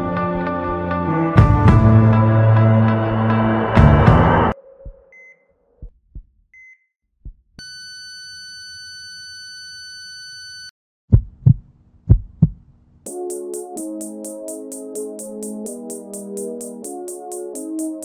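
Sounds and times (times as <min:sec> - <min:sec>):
heartbeat thumps: 0:05.8 - 0:06.4, 0:07.2 - 0:07.6, 0:11.1 - 0:12.7.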